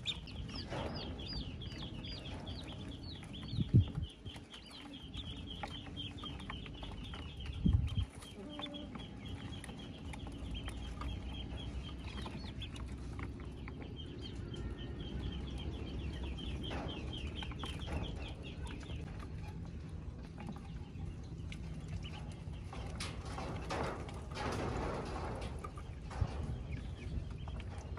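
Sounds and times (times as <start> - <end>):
ducklings peeping: 0.0 - 27.9.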